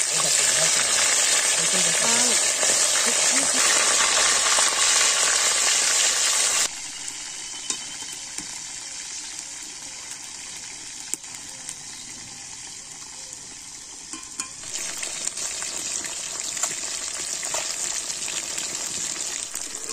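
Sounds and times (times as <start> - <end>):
fish frying in hot oil: 0.0 - 19.9.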